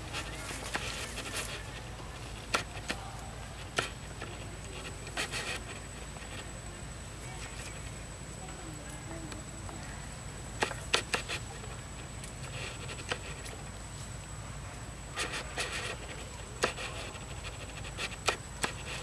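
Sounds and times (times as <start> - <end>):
dry leaves and twigs crackling: 0.0 - 6.5.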